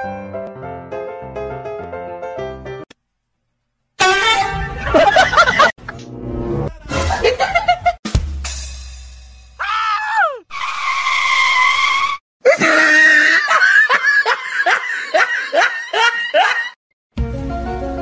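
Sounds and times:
high-pitched screaming voice: 0:09.6 - 0:13.5.

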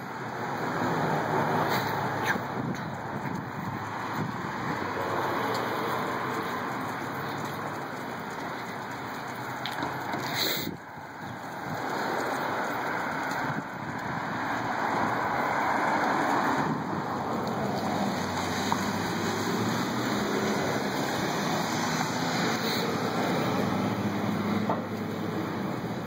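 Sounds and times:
car traffic: 0:00.0 - 0:26.0
wind on microphone: 0:01.9 - 0:05.2.

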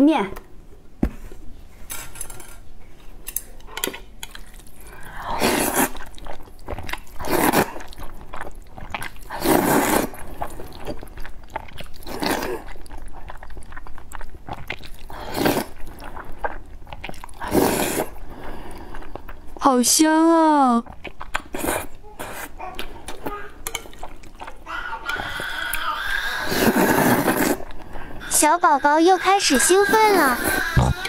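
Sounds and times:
person slurping noodles: 0:05.0 - 0:06.3, 0:07.2 - 0:08.0, 0:08.9 - 0:10.5, 0:15.0 - 0:16.5, 0:17.3 - 0:18.5, 0:21.4 - 0:22.6, 0:26.0 - 0:31.0.

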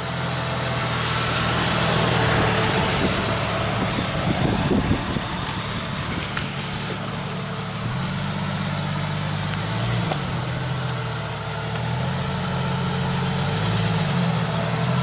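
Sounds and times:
car engine at low revs: 0:00.0 - 0:15.0.

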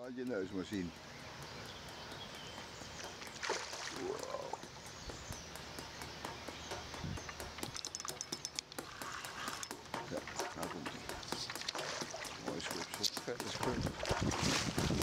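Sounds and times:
lakeside ambience: 0:00.0 - 0:15.0
splash in lake water: 0:03.4 - 0:04.6.

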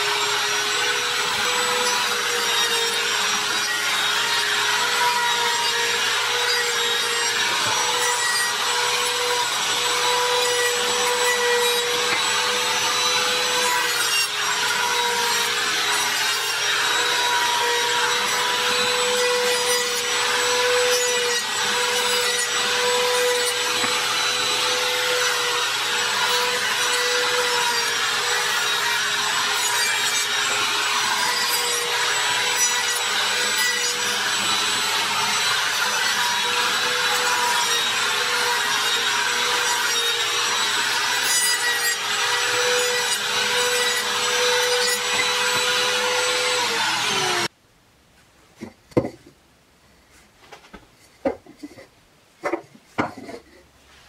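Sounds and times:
router high whine: 0:00.0 - 0:41.2
rough rasp of wood cutting: 0:00.0 - 0:47.5.

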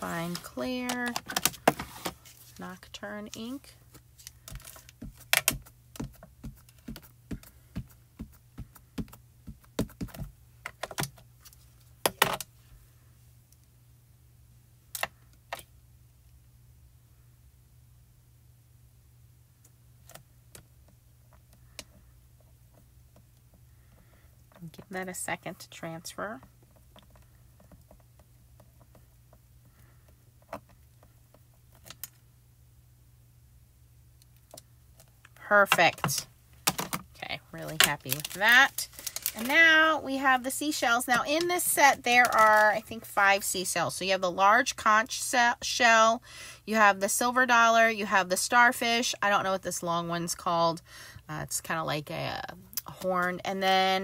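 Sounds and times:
low electrical hum: 0:00.0 - 0:54.0.

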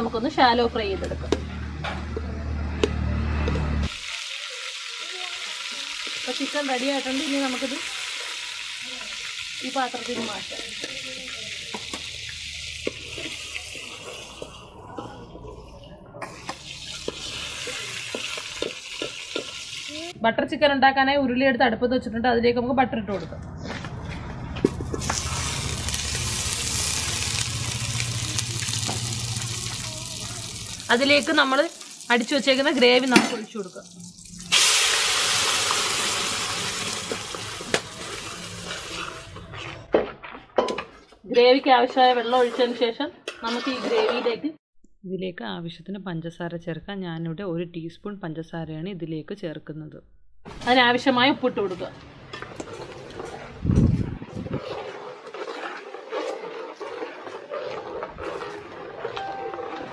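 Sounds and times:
chicken sizzling in hot oil: 0:03.9 - 0:14.8, 0:16.5 - 0:20.2, 0:24.9 - 0:39.3
spoon knocking and scraping pan: 0:12.8 - 0:15.1, 0:16.2 - 0:19.7, 0:54.4 - 0:59.9.

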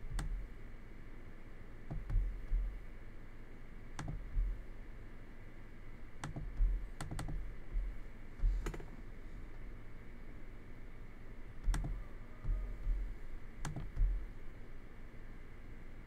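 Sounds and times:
computer mouse clicks: 0:00.0 - 0:00.4, 0:04.0 - 0:04.4, 0:06.2 - 0:07.5, 0:08.4 - 0:09.0, 0:11.6 - 0:12.9, 0:13.6 - 0:14.2
soft thuds on desk: 0:06.4 - 0:08.9.

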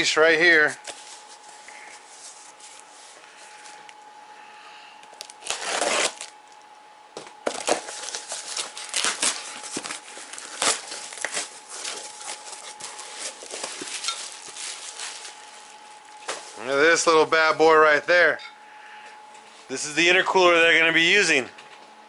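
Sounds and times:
bubble wrap crinkling: 0:00.6 - 0:03.9, 0:05.0 - 0:06.7, 0:07.4 - 0:17.1
packing peanuts rustling and squeaking: 0:05.1 - 0:06.4, 0:07.5 - 0:16.7.

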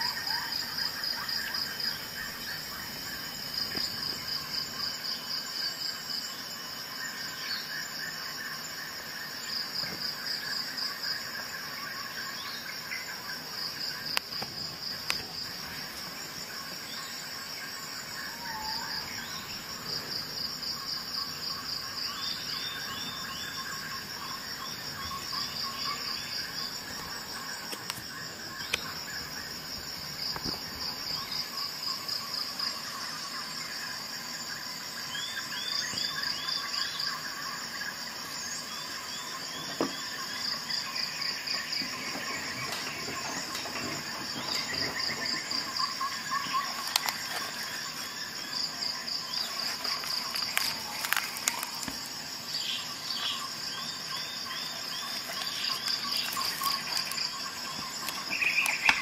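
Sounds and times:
insects chirping: 0:00.0 - 0:59.0.

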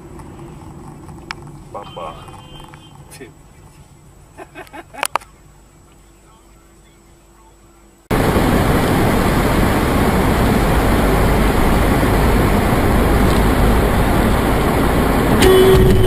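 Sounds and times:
heavy rain pounding a car: 0:08.1 - 0:16.0.

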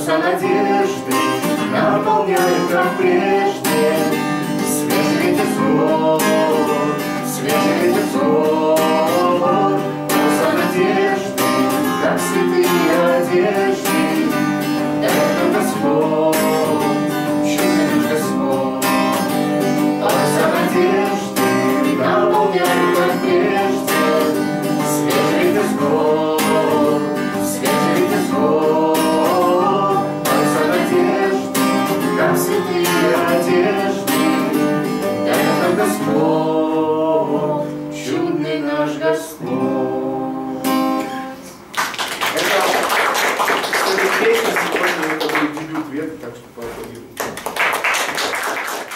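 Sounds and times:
woman singing: 0:00.0 - 0:14.4, 0:15.0 - 0:18.9, 0:20.0 - 0:34.6, 0:37.2 - 0:41.7
acoustic guitar strumming: 0:00.0 - 0:41.7.

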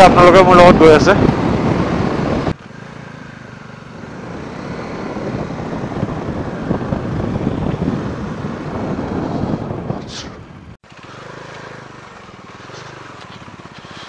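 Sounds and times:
wind rushing over microphone: 0:00.0 - 0:02.6, 0:03.9 - 0:10.8
motorcycle engine running: 0:00.0 - 0:14.0.

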